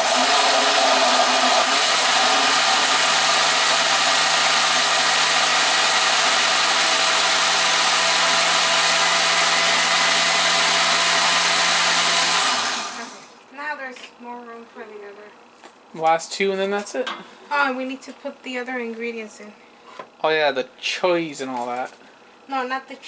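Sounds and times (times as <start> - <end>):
blender motor running: 0.0 - 13.4.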